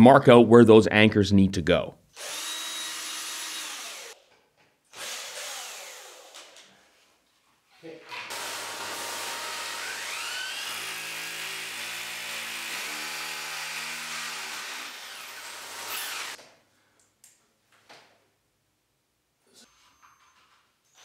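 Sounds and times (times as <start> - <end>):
power drill boring concrete: 2.2 - 4.2, 5.0 - 6.6, 8.2 - 16.4.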